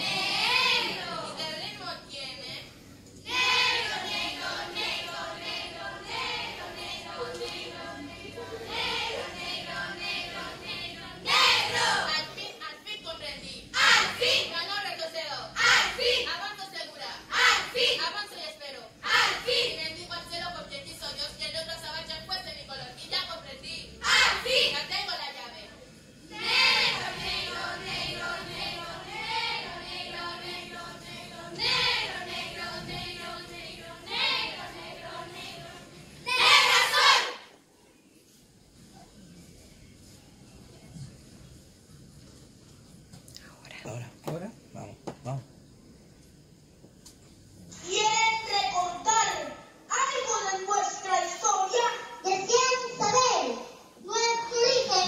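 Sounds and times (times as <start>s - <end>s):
women singing together: 0.0s - 1.6s, 3.2s - 12.4s, 26.3s - 37.5s
group of voices chanting: 13.8s - 14.5s, 31.0s - 37.5s.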